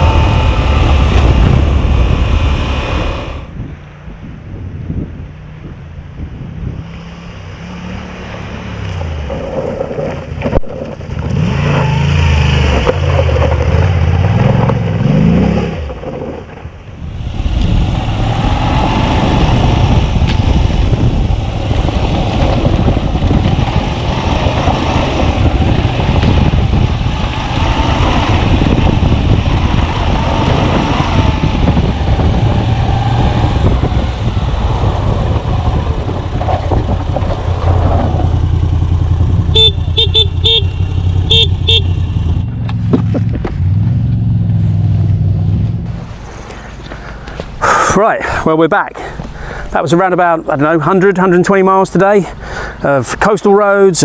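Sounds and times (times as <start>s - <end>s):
wind noise: 0.0s - 7.8s, 9.0s - 48.4s
motorcycle engine onboard: 0.0s - 47.6s
motorcycle engine passing: 7.1s - 46.5s.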